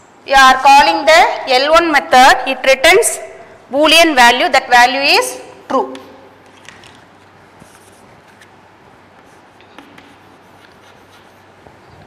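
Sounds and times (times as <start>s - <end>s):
chalk scratching on chalkboard: 7.6s - 12.0s.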